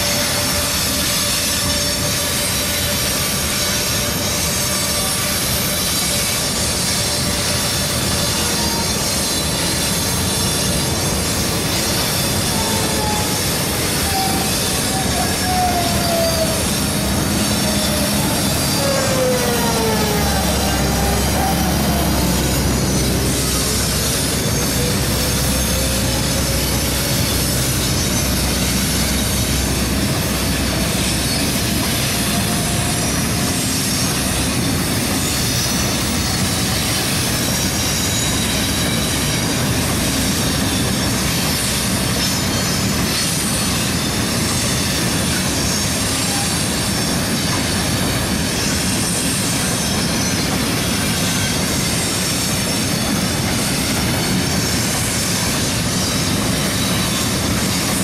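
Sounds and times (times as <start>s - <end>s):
faint wheel squealing: 0.0s - 58.0s
train wheels rumbling on track: 0.0s - 58.0s
faint rising whine: 9.6s - 33.3s.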